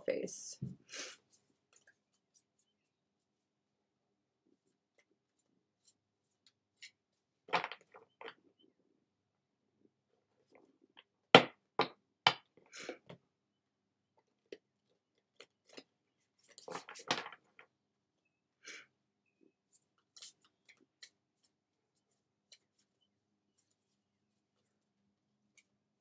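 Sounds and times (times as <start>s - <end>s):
cards being shuffled: 19.6s - 24.8s.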